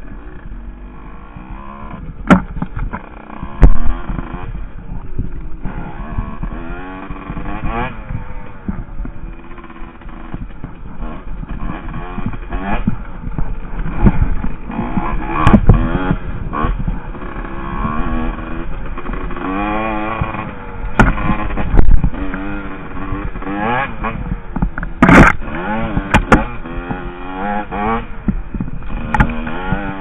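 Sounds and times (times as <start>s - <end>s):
dirt bike engine revving: 0.0s - 30.0s
sharp knocks: 2.2s - 4.2s, 21.0s - 22.2s.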